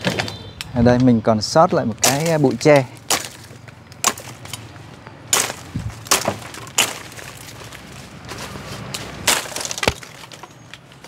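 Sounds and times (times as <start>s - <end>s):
knife chopping bamboo: 2.0s - 4.6s, 5.3s - 7.8s.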